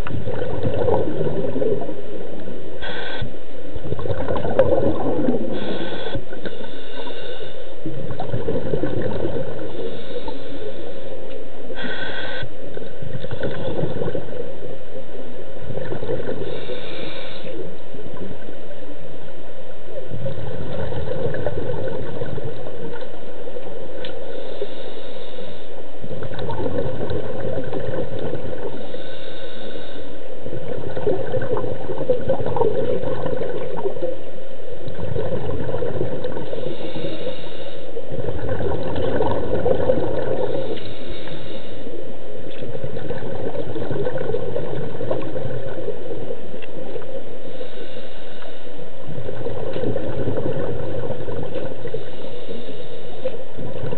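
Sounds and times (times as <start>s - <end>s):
gurgling exhaled bubbles: 0.0s - 3.1s, 3.7s - 7.1s, 7.8s - 10.7s, 11.7s - 14.8s, 15.5s - 18.5s, 19.9s - 24.2s, 26.1s - 29.1s, 30.4s - 47.8s, 49.0s - 53.9s
regulator hiss on inhalation: 2.8s - 3.4s, 5.5s - 7.8s, 11.8s - 12.6s, 16.4s - 17.7s, 24.1s - 25.8s, 28.7s - 30.3s, 36.5s - 38.0s, 40.4s - 42.1s, 47.4s - 48.9s, 51.8s - 53.4s.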